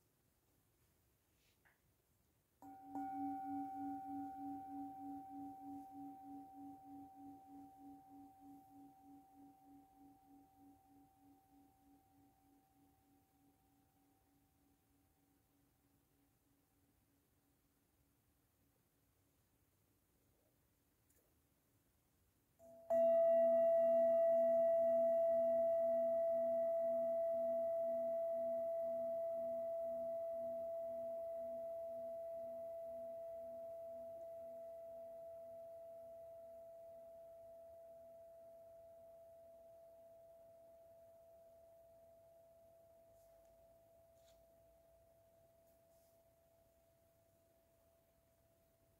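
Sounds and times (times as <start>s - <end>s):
singing bowl ringing: 2.6s - 12.9s, 22.6s - 44.3s.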